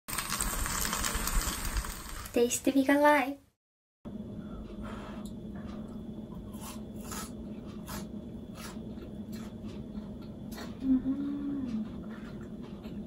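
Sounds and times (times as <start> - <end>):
steady low hum: 4.1 - 13.0.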